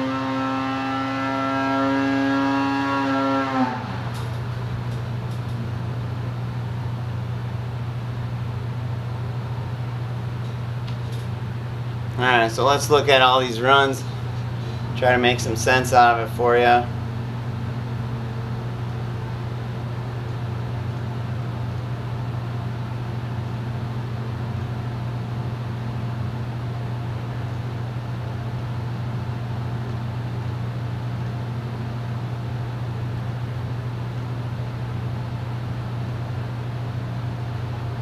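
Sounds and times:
low machinery hum: 0:00.0 - 0:38.0.

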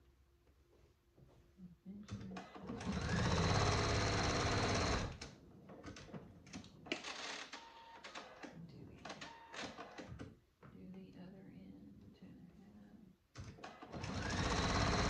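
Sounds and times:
sewing machine stitching: 0:02.4 - 0:05.3, 0:13.6 - 0:15.0.

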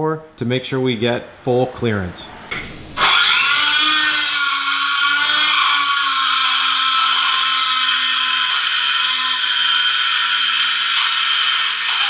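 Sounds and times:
die grinder grinding metal: 0:03.0 - 0:12.0.

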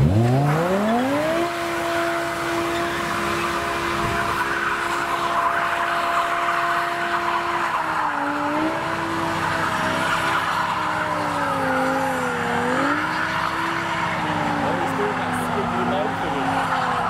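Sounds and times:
car engine at high revs: 0:00.0 - 0:17.0
tyres squealing and skidding: 0:00.0 - 0:17.0.

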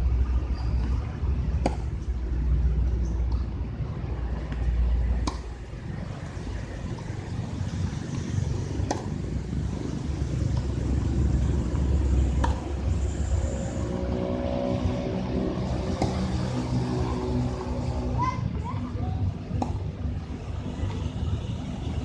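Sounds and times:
tennis racket hitting ball: 0:05.2 - 0:05.7, 0:08.7 - 0:09.4, 0:12.3 - 0:12.8, 0:15.9 - 0:16.2.

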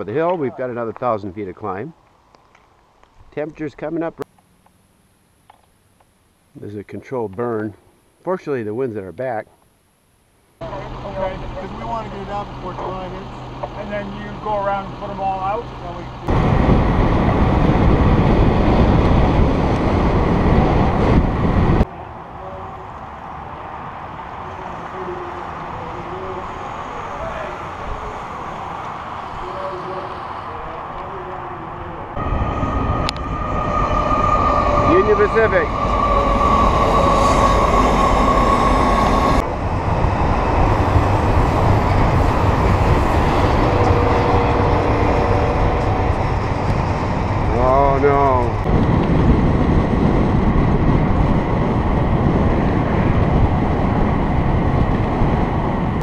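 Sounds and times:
quiet outdoor background: 0:00.0 - 0:18.0
freight train running: 0:10.6 - 0:56.0
wind noise on microphone: 0:16.3 - 0:22.2, 0:32.2 - 0:56.0.

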